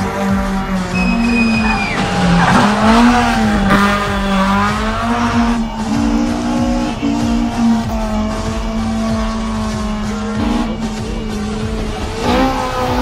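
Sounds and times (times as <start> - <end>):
car engine revving hard: 0.0 - 13.0
tyres squealing: 0.0 - 13.0.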